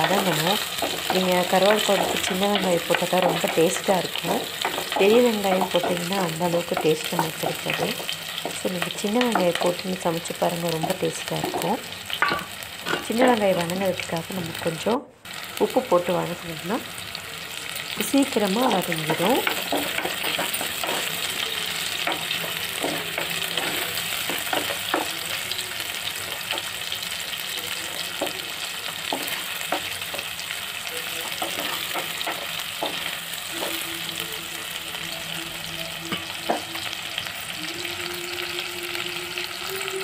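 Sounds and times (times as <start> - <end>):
vegetables sizzling in oil: 0.0 - 40.0
wooden spatula scraping clay pot: 19.1 - 25.5.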